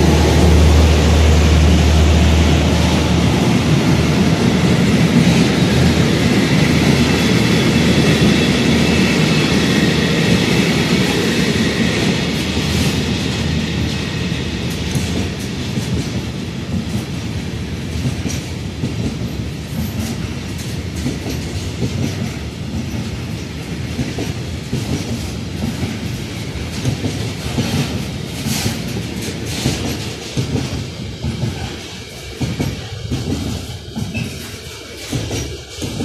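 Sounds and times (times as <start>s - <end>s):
train wheels rumbling on rail: 0.0s - 36.0s
wheels clacking over rail joints: 17.9s - 36.0s.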